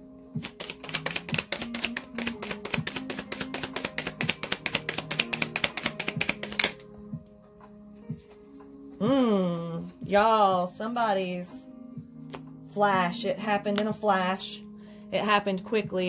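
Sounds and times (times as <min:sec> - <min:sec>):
soft background music: 0:00.0 - 0:16.0
cards being shuffled: 0:00.4 - 0:06.9.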